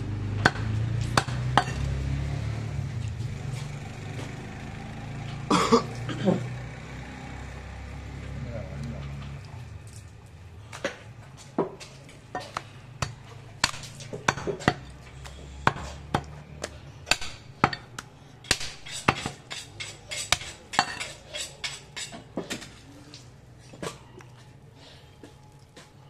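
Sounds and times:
cleaver chopping meat and bone: 0:00.2 - 0:02.0, 0:12.4 - 0:22.7.

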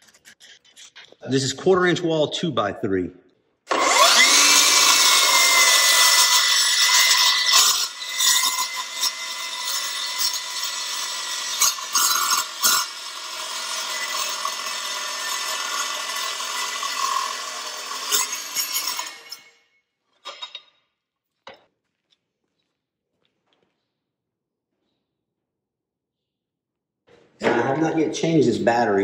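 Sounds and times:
circular saw cutting steel: 0:03.7 - 0:19.6.

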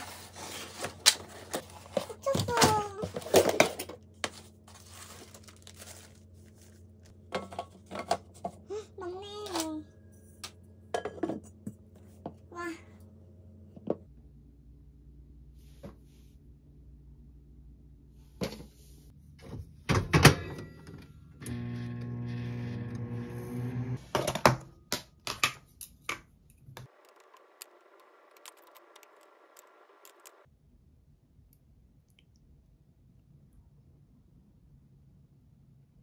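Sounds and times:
kitchenware knocks and clinks: 0:11.0 - 0:11.5.

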